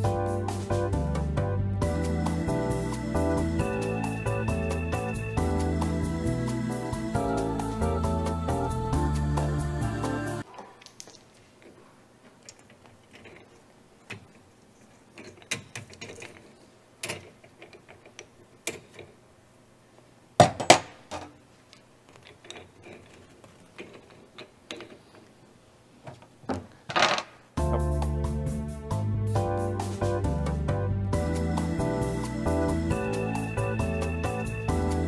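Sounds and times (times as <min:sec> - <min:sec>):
metal parts clicking and clacking: 0:10.4 - 0:19.2, 0:20.6 - 0:25.4.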